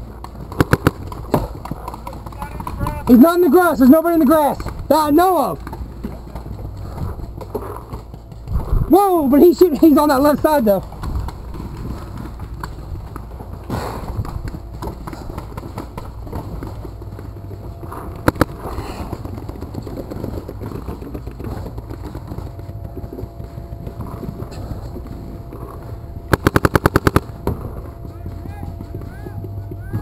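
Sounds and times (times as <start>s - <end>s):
paintball marker shots: 0.5s - 1.5s, 18.2s - 18.6s, 26.3s - 27.3s.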